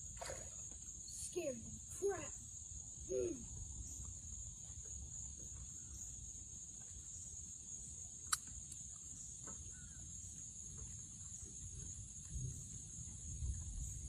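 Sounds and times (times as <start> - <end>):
insects chorus: 0.0 - 14.0
sharp click: 8.2 - 8.8.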